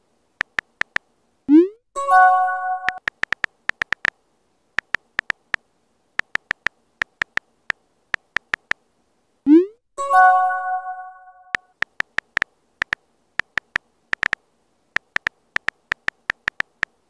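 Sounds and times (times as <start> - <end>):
phone keyboard clicks: 0.4 - 1.0, 2.8 - 4.2, 4.8 - 5.6, 6.2 - 8.8, 11.6 - 14.4, 15.0 - 17.0
short chime of held tones: 10.0 - 11.5.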